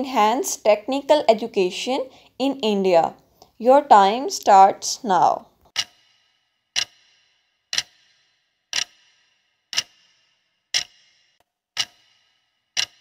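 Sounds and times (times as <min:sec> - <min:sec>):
clock ticking: 0:05.7 - 0:11.2, 0:11.8 - 0:13.0.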